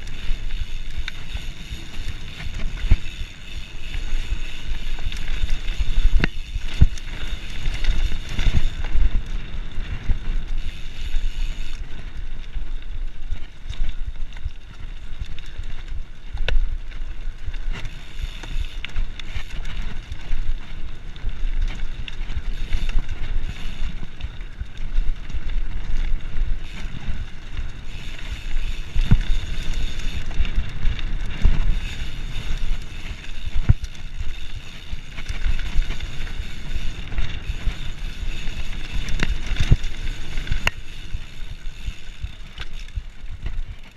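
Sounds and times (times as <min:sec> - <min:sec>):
bike knocking and rattling: 0:00.0 - 0:43.9
tyre noise on dirt: 0:00.0 - 0:43.9
wind buffeting microphone: 0:15.0 - 0:43.8.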